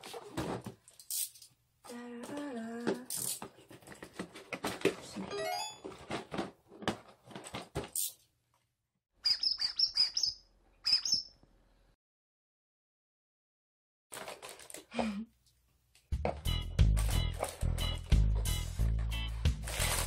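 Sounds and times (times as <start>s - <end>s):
unpacking clicks and rustles: 2.9s - 5.2s, 5.8s - 8.2s, 14.1s - 14.9s, 17.0s - 17.8s, 18.8s - 20.0s.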